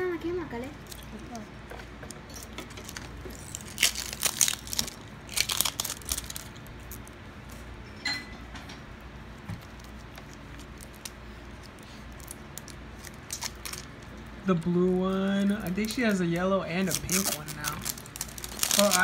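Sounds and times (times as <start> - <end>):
plastic wrapper crinkling and tearing: 2.0 - 7.2, 9.6 - 19.0.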